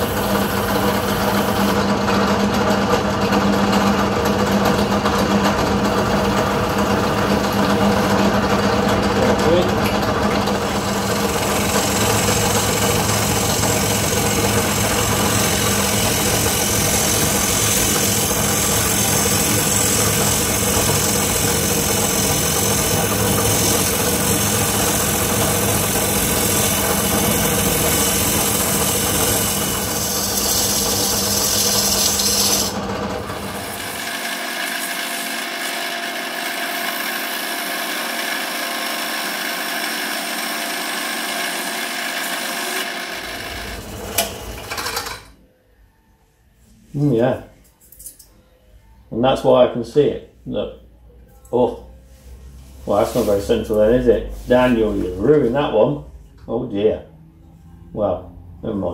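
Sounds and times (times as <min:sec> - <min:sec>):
turning tool cutting wood: 0:00.0 - 0:45.3
wood lathe humming: 0:00.0 - 0:45.3.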